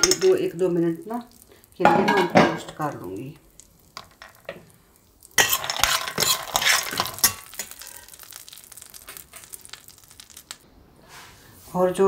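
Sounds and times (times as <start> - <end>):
nuts clattering in metal pan: 0.0 - 0.8, 1.8 - 4.7, 5.3 - 10.6.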